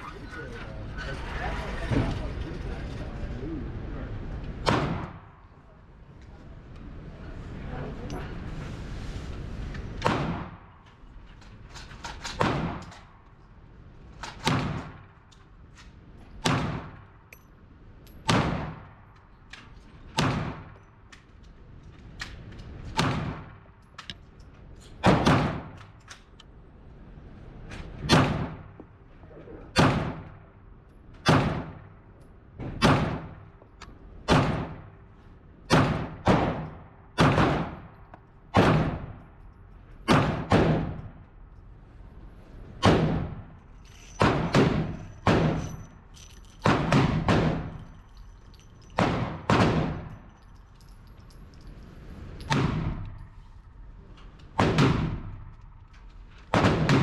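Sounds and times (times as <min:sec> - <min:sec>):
handgun shots echoing indoors: 0:38.5 - 0:39.2, 0:56.5 - 0:57.0.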